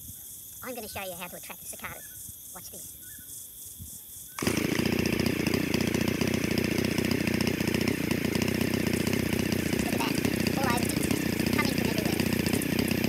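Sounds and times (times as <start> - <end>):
chainsaw engine buzzing: 4.4 - 13.0.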